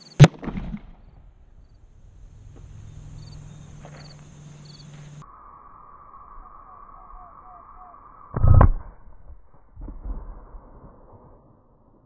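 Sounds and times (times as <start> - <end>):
insects chirping: 0.9 - 8.4
steady low hum: 1.1 - 8.6.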